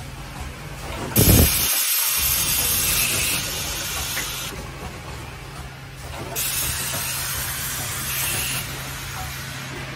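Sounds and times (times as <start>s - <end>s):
machine hiss: 1.2s - 4.5s.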